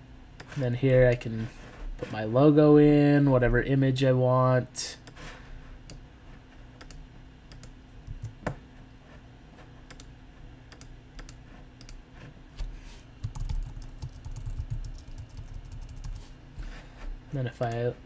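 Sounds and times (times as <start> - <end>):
keyboard typing: 13.2 - 16.3.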